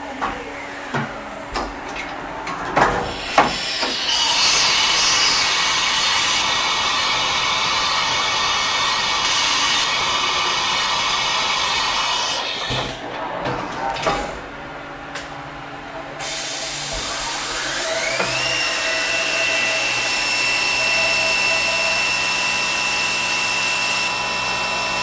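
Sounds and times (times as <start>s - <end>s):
spindle cutting hiss: 3.1s - 12.7s.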